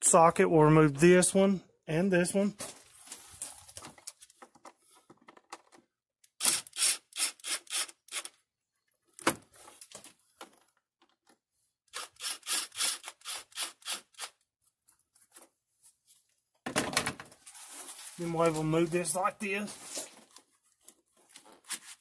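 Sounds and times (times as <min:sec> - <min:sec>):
ratchet clicking strokes: 0:06.4 - 0:08.3, 0:11.9 - 0:14.4.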